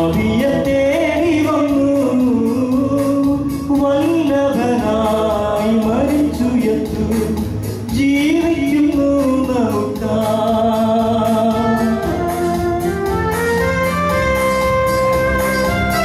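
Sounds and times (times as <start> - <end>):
man singing a hymn: 0.0 - 12.4
instrumental accompaniment with beat: 0.0 - 16.0.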